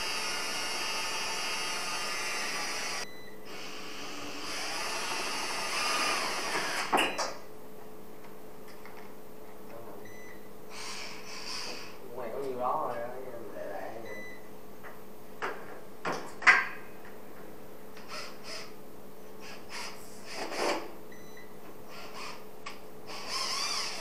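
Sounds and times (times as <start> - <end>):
cordless drill whirring: 0.0 - 6.9, 18.1 - 18.7, 19.4 - 20.5, 21.9 - 22.4, 23.1 - 24.0.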